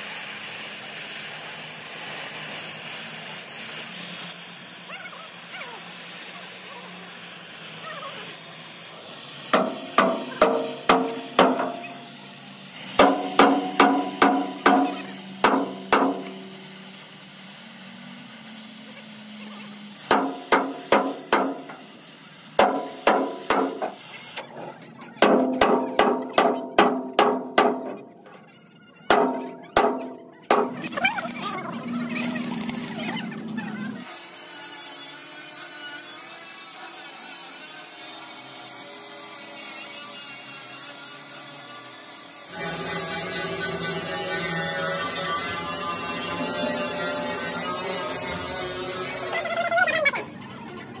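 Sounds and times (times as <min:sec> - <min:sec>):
gas torch hissing: 0:00.0 - 0:24.6
sledgehammer striking steel plate: 0:09.6 - 0:12.1, 0:12.9 - 0:16.5, 0:20.1 - 0:21.8, 0:22.6 - 0:24.0, 0:25.2 - 0:28.1, 0:29.1 - 0:30.8.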